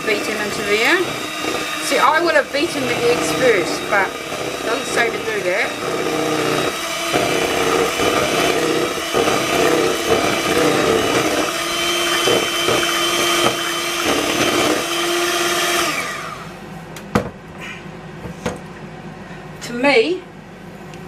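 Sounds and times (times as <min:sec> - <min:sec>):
electric hand mixer whirring: 0:00.0 - 0:16.6.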